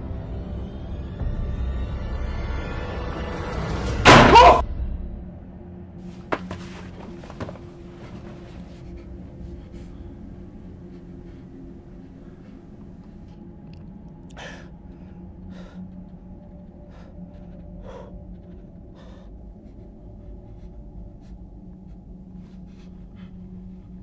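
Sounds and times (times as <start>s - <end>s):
steady low hum: 5.1s - 24.0s.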